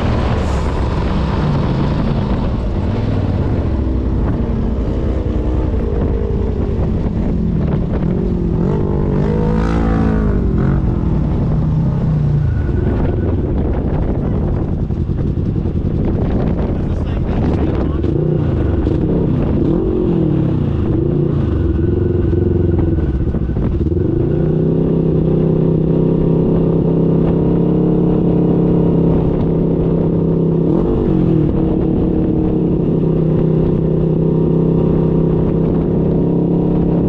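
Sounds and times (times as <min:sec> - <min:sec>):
utility vehicle engine revving: 0:00.0 - 0:37.0.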